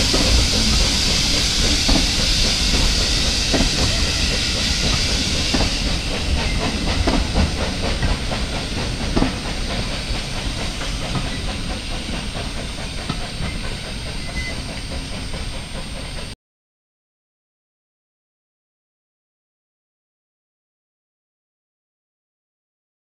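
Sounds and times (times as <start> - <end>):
steam train hiss and rolling: 0.0 - 16.4.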